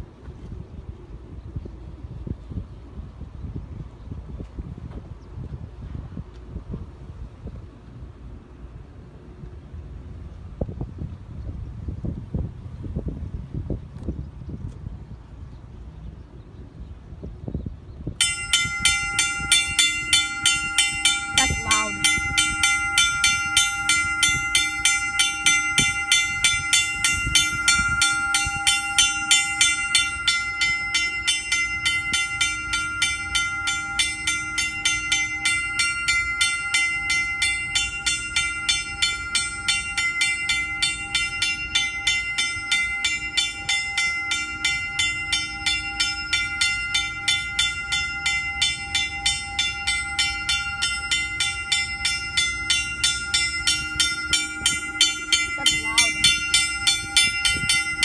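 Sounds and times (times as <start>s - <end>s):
warning bell ringing rapidly: 18.2s - 58.0s.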